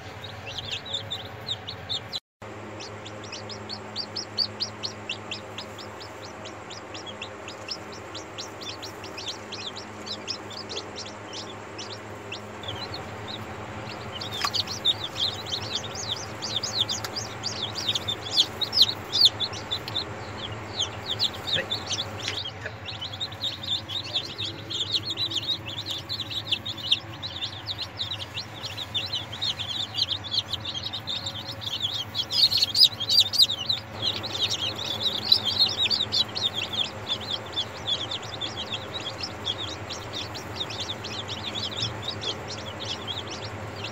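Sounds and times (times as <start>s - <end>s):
chicks peeping: 0.0s - 43.9s
faint low hum: 0.0s - 43.9s.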